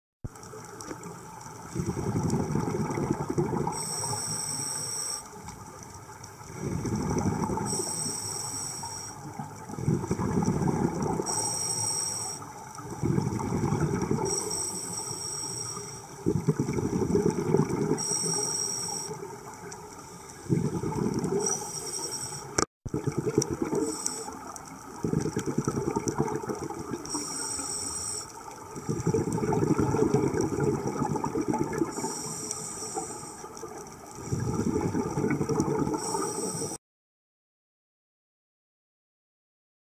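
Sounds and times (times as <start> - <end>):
exhaled bubbles underwater: 0.3 - 36.8
regulator inhale hiss: 3.7 - 5.5, 7.7 - 9.4, 11.2 - 12.7, 14.2 - 16.2, 18.0 - 19.3, 21.4 - 22.6, 23.8 - 24.5, 27.0 - 29.0, 31.9 - 33.6, 36.0 - 36.8.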